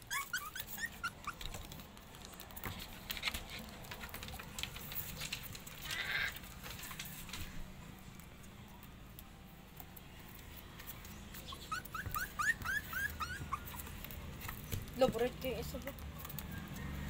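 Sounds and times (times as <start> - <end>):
puppy whimpering: 0.0 - 1.8, 11.4 - 14.2.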